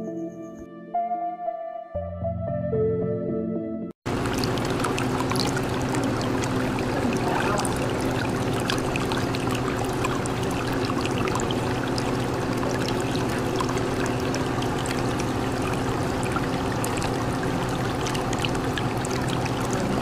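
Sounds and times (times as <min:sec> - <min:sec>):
low steady hum: 0:04.1 - 0:20.0
water trickling and bubbling: 0:04.1 - 0:20.0.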